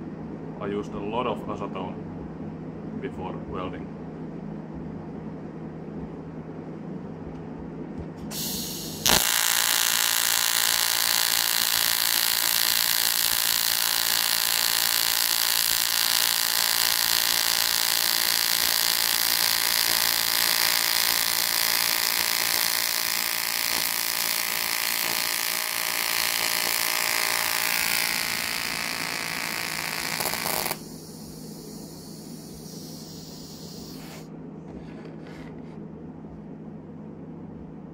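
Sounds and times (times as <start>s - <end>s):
gas hiss: 8.3s - 34.3s
welding arc buzzing: 8.3s - 34.3s.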